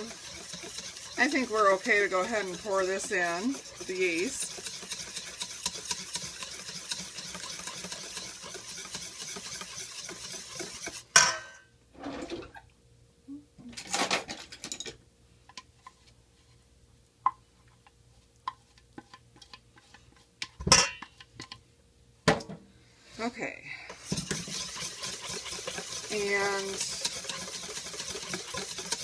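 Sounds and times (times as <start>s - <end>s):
utensils tapping metal bowl: 0.0s - 8.3s, 24.1s - 29.0s
whisk scraping metal bowl: 0.0s - 11.1s, 23.9s - 29.0s.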